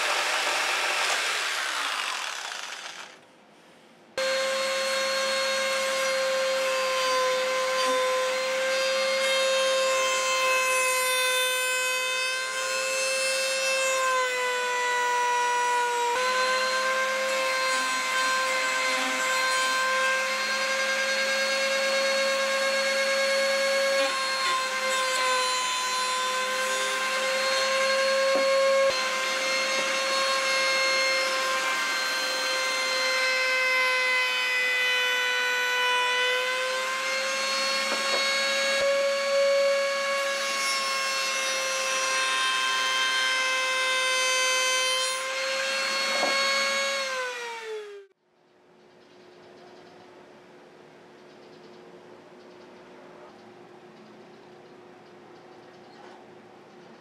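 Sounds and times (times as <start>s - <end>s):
router bit cutting wood: 0.0s - 3.2s, 4.2s - 48.1s
wood router whining: 0.0s - 3.2s, 4.2s - 48.2s.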